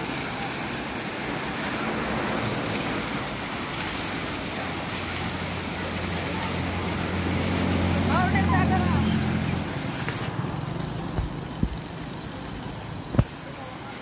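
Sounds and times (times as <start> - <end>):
water churning around water wheel: 0.0 - 14.0.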